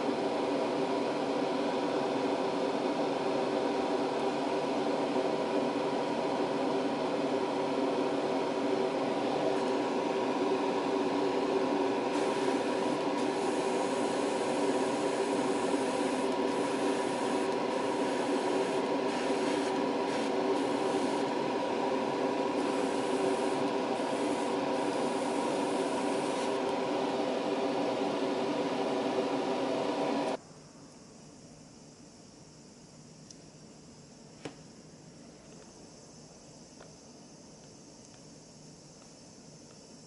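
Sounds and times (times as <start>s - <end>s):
air hissing: 12.0s - 21.4s, 22.1s - 26.7s.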